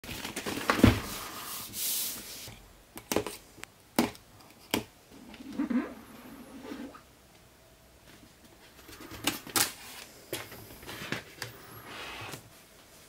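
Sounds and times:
cardboard sliding scrape: 10.8s - 12.4s.

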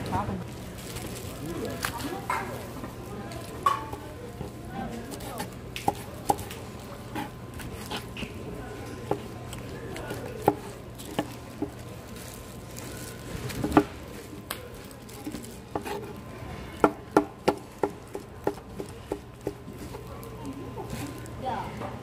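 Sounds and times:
knife chopping on cutting board: 10.4s - 11.8s, 16.8s - 19.6s.

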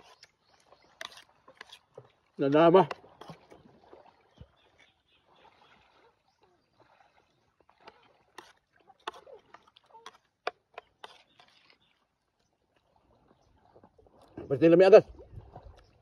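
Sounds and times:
wet chewing: 0.0s - 2.1s, 7.8s - 12.0s.

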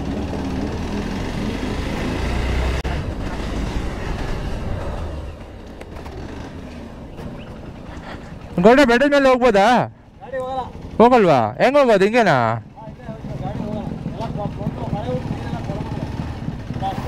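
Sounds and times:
motorcycle engine rumbling: 0.0s - 17.0s.

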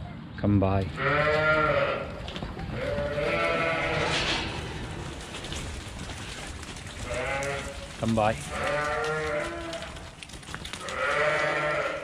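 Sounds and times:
sheep bleating: 1.0s - 4.2s, 7.0s - 10.0s, 10.8s - 12.0s.

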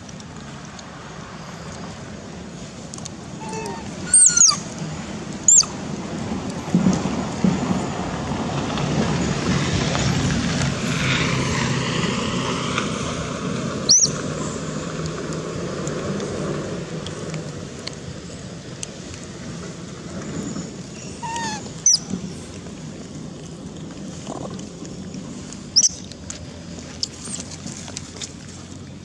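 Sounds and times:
engine passing by: 0.0s - 29.0s
short falling monkey call: 3.4s - 4.6s
baby macaques squeaking: 3.4s - 4.7s, 5.4s - 5.8s, 13.8s - 14.2s, 21.0s - 22.1s, 25.8s - 26.0s, 27.2s - 27.5s.

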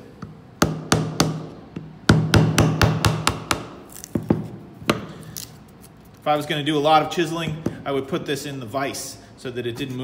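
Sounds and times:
rubber mallet striking chisel: 0.2s - 5.2s.

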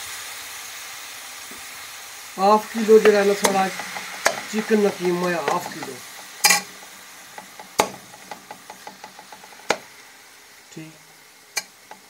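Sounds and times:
mince sizzling: 0.0s - 12.0s
metal spoon scraping and knocking pan: 2.9s - 9.9s, 11.6s - 12.0s.

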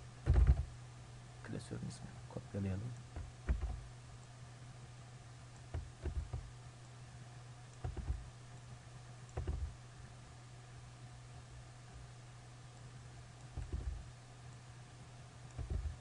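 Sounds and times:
steady low hum: 0.0s - 16.0s
keyboard and mouse clicks: 0.2s - 0.6s, 3.2s - 3.8s, 5.7s - 6.4s, 7.7s - 8.2s, 9.3s - 9.7s, 13.4s - 14.0s, 15.5s - 16.0s.

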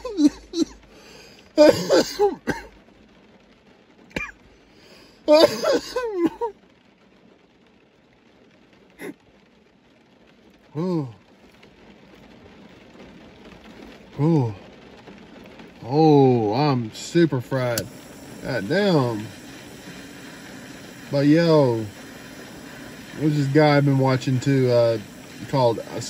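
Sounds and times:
man coughing hoarsely: 0.0s - 0.8s, 1.6s - 2.7s, 4.1s - 4.3s, 5.3s - 6.5s
man humming low: 10.8s - 11.2s, 14.2s - 14.6s.

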